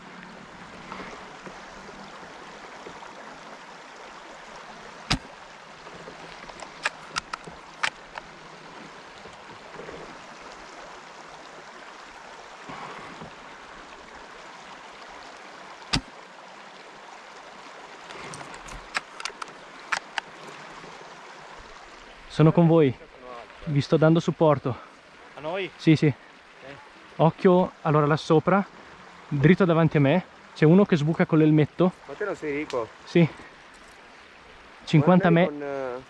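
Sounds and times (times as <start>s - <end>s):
stream running: 0.0s - 36.0s
sharp clicks: 6.4s - 8.3s, 18.4s - 20.3s.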